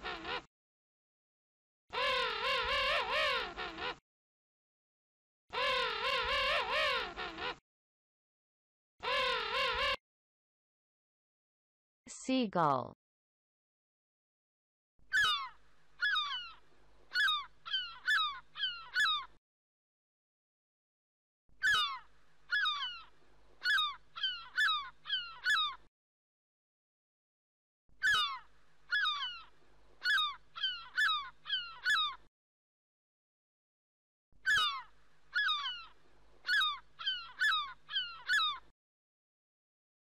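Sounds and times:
seagull calling: 0.0 - 0.5, 2.0 - 4.0, 5.6 - 7.6, 9.0 - 10.0, 15.1 - 19.3, 21.6 - 25.9, 28.0 - 32.3, 34.4 - 38.7.

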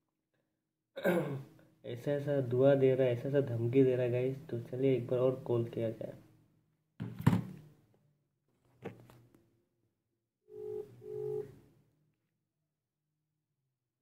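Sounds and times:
phone ringback tone beeps: 10.5 - 11.6.

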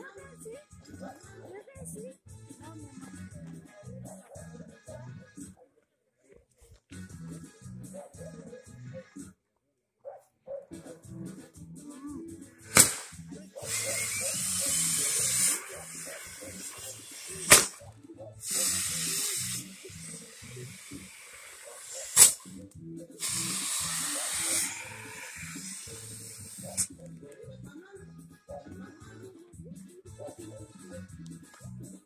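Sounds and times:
music: 0.0 - 5.7, 6.6 - 9.6, 10.2 - 32.0
fizzing hiss of sparks: 12.7 - 17.8, 18.4 - 22.5, 23.2 - 26.9.

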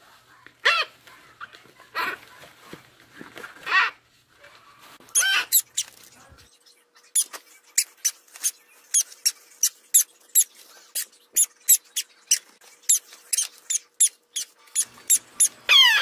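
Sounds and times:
parrot chick begging calls: 15.1 - 16.0.

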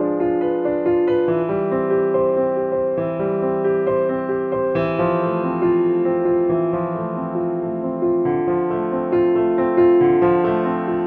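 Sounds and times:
piano music: 0.0 - 11.0.

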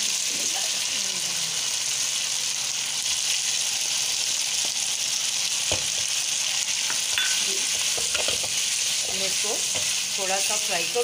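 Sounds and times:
chicken sizzling in oil: 0.0 - 11.0.

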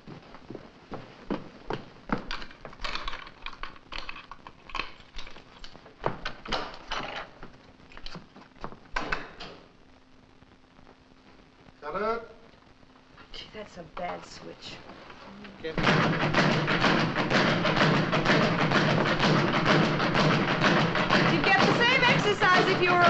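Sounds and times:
hurried footsteps on wooden floor: 0.0 - 2.3, 15.8 - 23.0
faint steady hum: 0.0 - 23.0
dishes and objects clattering: 2.3 - 7.3.

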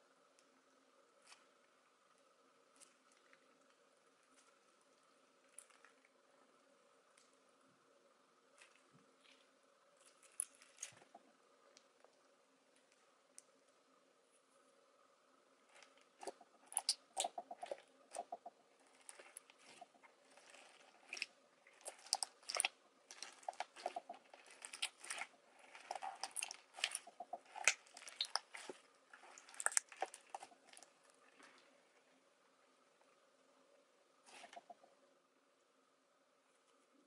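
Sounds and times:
slime bubbles popping: 19.1 - 30.8.

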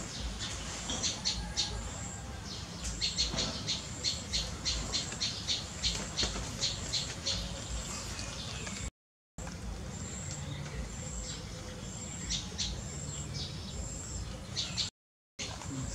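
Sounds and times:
bird chirping: 0.0 - 8.9, 10.0 - 15.9.

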